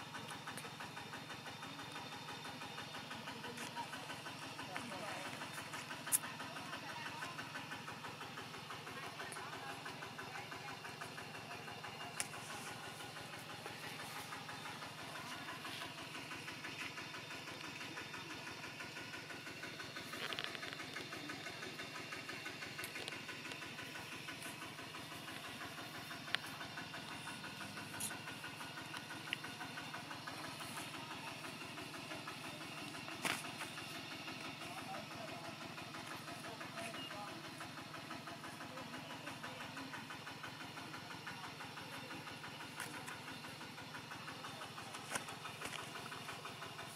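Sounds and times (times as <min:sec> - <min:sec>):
engine idling: 0:00.0 - 0:46.9.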